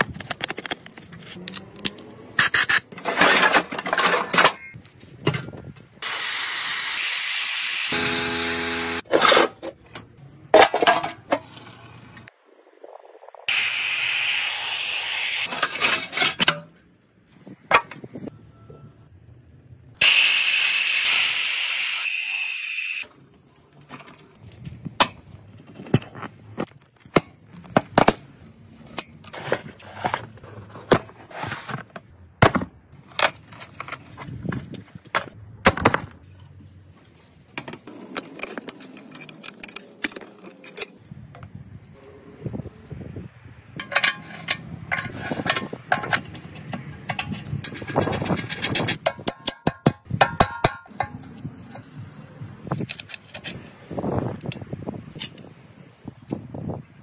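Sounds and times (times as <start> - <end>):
steel blade scraping rust: 2.4 - 4.2, 43.8 - 49.1
power tool grinding rust off steel: 6.0 - 9.1, 13.5 - 15.5, 20.0 - 23.1.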